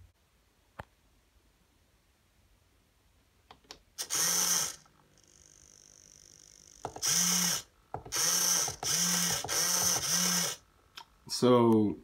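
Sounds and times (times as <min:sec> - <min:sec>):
servo motor whirring: 0:04.0 - 0:10.6.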